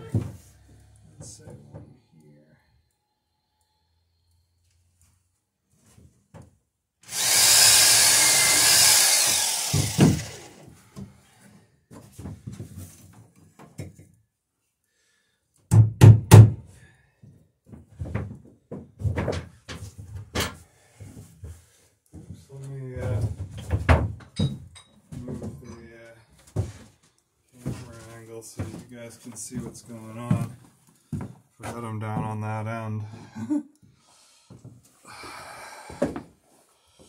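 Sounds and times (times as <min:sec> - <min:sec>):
loud hiss: 0:07.1 - 0:10.5
hammer blows driving a nail: 0:07.1 - 0:10.7.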